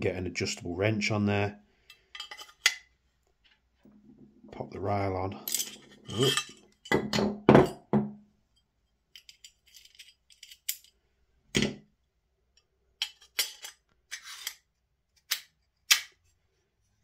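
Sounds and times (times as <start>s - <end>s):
metal parts knocking and clinking: 9.2s - 10.9s.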